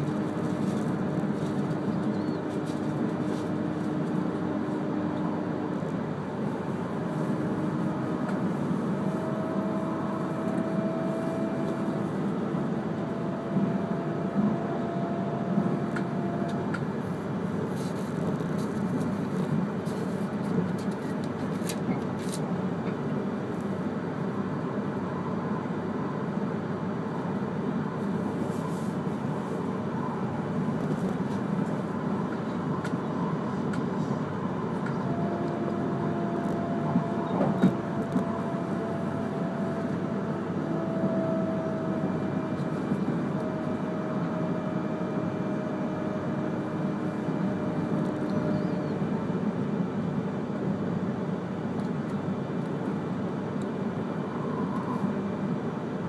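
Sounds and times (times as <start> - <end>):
train wheels rumbling on rail: 0.0 - 56.0
whine sliding lower in pitch: 7.4 - 12.0.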